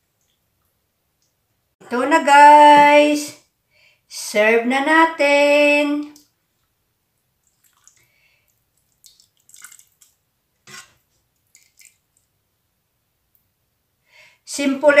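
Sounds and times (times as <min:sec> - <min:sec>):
faint drips: 0:06.1 - 0:10.2, 0:10.9 - 0:12.4.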